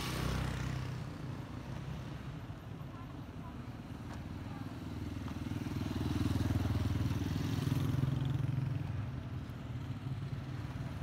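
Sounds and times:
motorcycle engine passing: 4.9 - 9.2.

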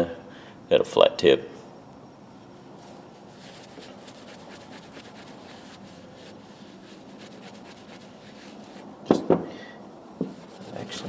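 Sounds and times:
cloth rubbing on plastic: 2.7 - 8.9, 10.2 - 11.0.

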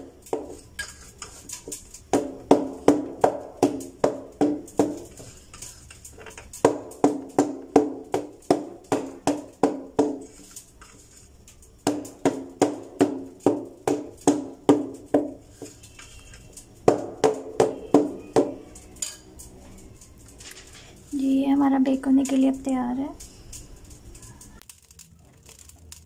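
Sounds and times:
cake tin knocking on floor: 2.1 - 5.2, 6.5 - 10.4, 11.8 - 15.8, 16.8 - 19.2.

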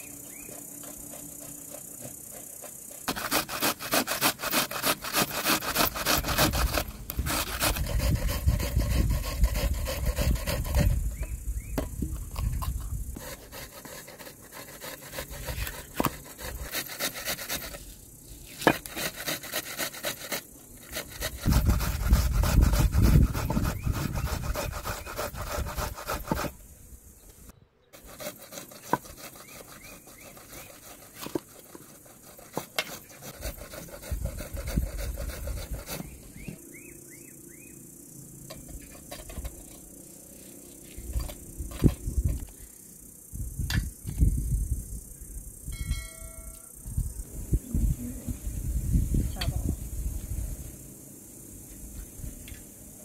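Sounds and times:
blade scraping board: 0.3 - 17.9, 18.5 - 26.6, 28.0 - 36.6, 38.5 - 39.9.

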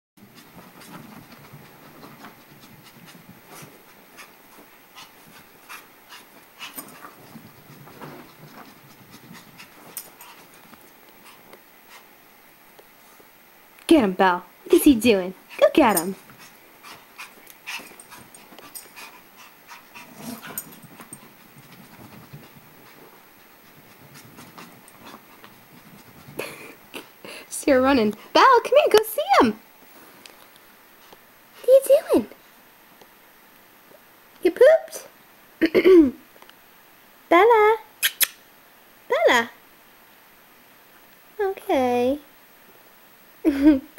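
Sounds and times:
dog panting: 0.2 - 12.1, 15.3 - 28.7
faint clicks and rustles: 0.2 - 13.9, 15.4 - 31.3.

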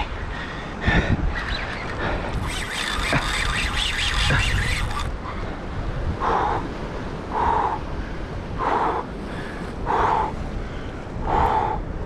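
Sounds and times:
wind buffeting microphone: 0.0 - 12.0
bird calling: 1.3 - 5.1.

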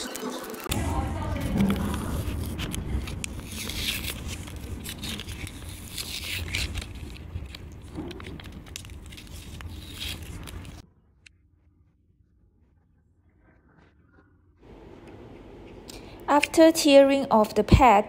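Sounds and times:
foam pad crackling as peeled: 0.0 - 10.8.

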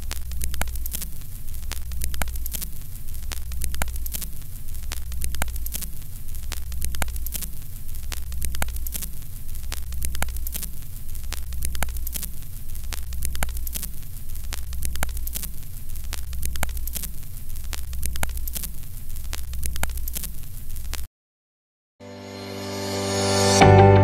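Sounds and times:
crackling static: 0.0 - 21.1.

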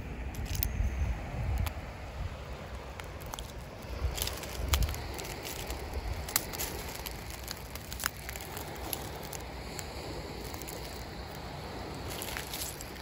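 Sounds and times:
steady low rumble: 0.0 - 13.0
footsteps crunching on seashells: 2.8 - 13.0.

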